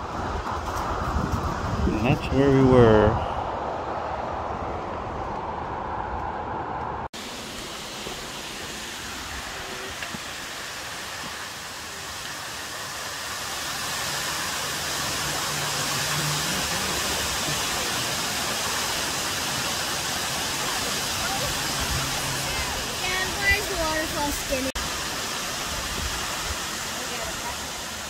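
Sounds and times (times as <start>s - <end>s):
rush of falling water: 0.0s - 4.0s, 7.2s - 28.0s.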